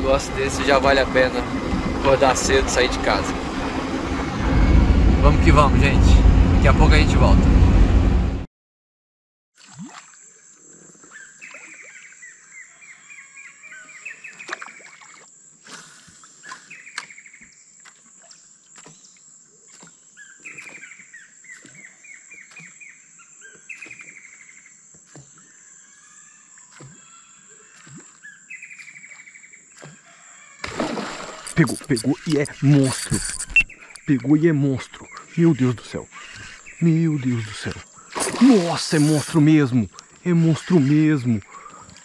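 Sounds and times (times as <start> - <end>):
birds singing: 11.1 - 15.1, 19.9 - 30.7, 31.4 - 42.0
high-pitched insect drone: 31.0 - 34.4, 35.4 - 41.4.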